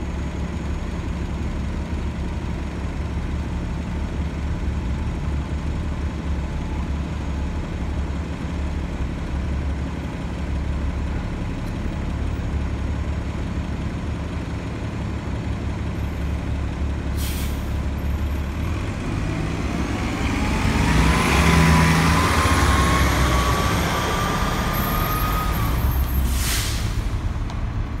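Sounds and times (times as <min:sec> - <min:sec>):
bus engine idling: 0:00.0 - 0:28.0
air brake hiss: 0:17.1 - 0:17.8, 0:25.9 - 0:27.2.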